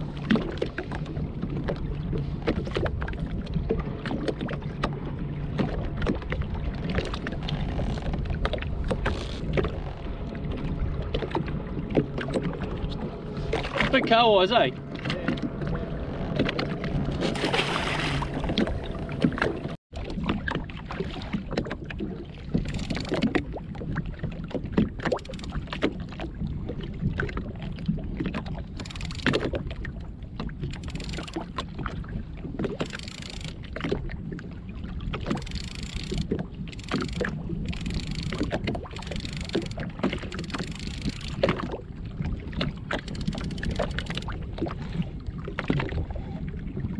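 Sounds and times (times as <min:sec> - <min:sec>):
water splashing against a hull: 0:00.0 - 0:46.9
wind rumble on microphone: 0:00.0 - 0:46.9.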